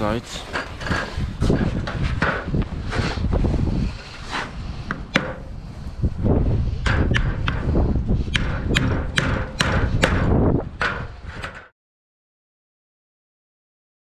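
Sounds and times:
hammer striking steel chisel: 8.3s - 11.7s.

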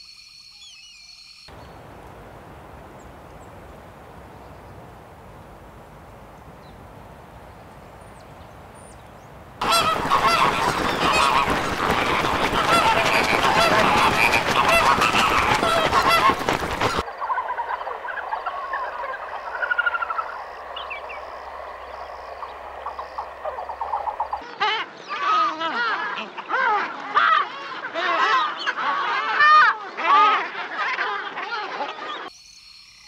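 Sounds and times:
scattered bird calls: 0.5s - 26.6s
low hum: 1.5s - 12.8s, 17.4s - 24.4s
flamingos honking: 1.5s - 24.5s
wings flapping: 9.3s - 24.4s.

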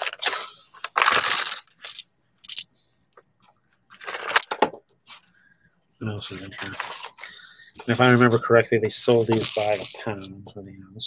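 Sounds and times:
stones crunching and rattling: 0.9s - 2.6s, 9.2s - 10.2s.

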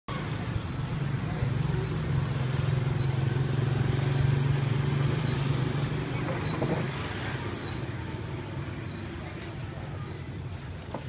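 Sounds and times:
street traffic noise: 0.1s - 11.0s.

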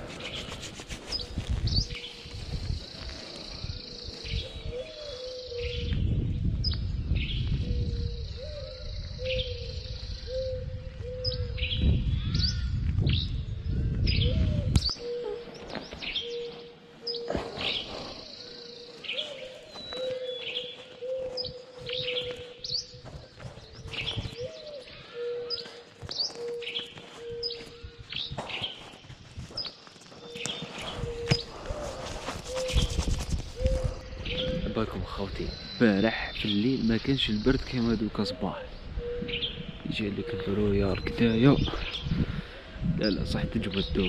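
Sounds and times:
small birds chirping: 0.0s - 44.0s.

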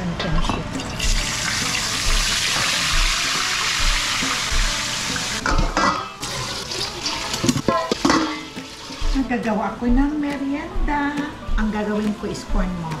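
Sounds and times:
fish sizzling in hot oil: 1.1s - 5.4s
metal tongs clattering on steel bowl: 5.4s - 6.1s, 7.4s - 8.5s.

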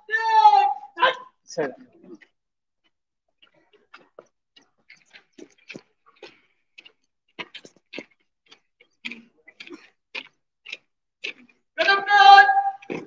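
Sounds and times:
boots marching in step: 3.4s - 13.0s.

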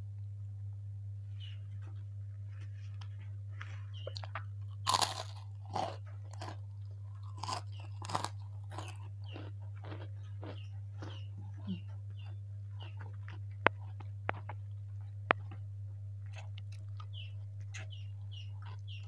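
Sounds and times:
steady low hum: 0.0s - 19.0s
cracker crunching in mouth: 4.1s - 11.6s.

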